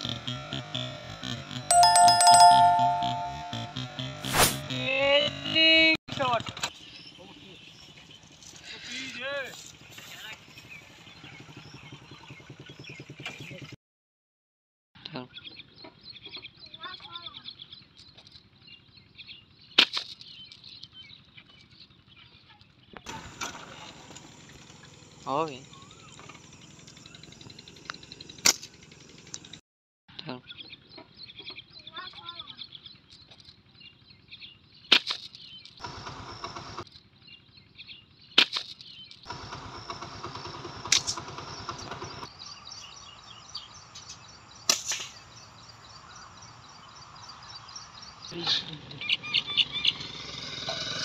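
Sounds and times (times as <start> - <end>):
small birds chirping: 6.2 - 13.8, 15.0 - 23.1, 24.3 - 35.8, 36.8 - 39.3, 41.4 - 51.0
engine running: 23.2 - 29.6, 39.3 - 42.3.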